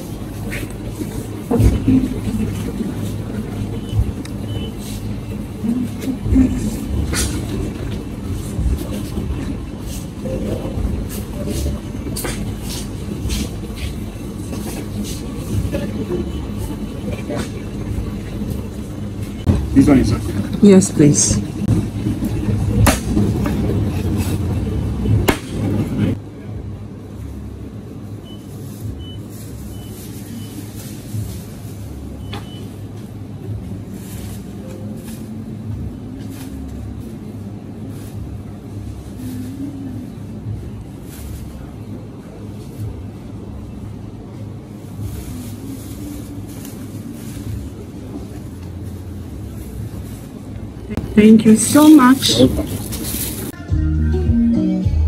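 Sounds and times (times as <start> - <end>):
low engine hum: 0.0 - 55.0
low rumble of busy surroundings: 0.0 - 55.0
high beeps: 3.8 - 4.8.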